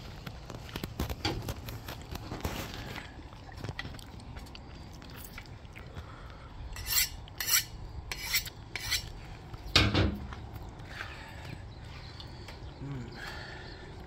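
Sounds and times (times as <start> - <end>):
knife scraping on honing steel: 6.8 - 9.1.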